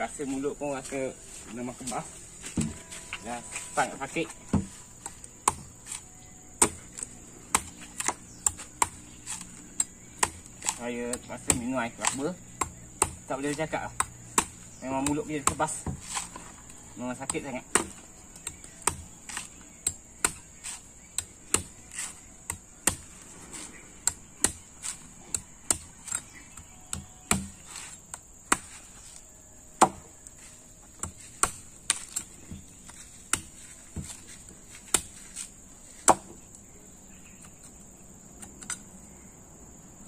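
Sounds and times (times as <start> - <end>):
knife chopping into coconut: 6.6 - 16.4, 17.2 - 28.8, 29.8 - 30.0.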